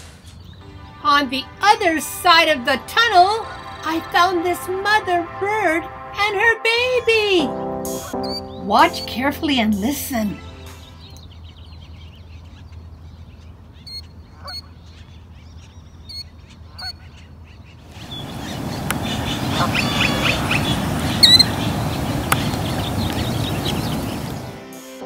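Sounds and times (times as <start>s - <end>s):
bird short high calls: 17.9s - 24.6s
loud rushing noise: 17.9s - 24.6s.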